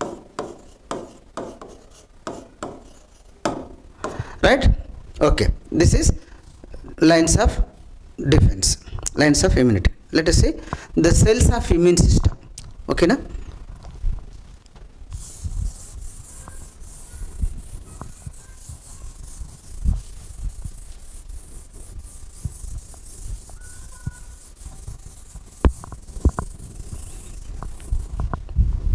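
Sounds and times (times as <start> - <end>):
steady hiss: 0.0 - 28.6
hand rubbing touchscreen: 15.1 - 28.4.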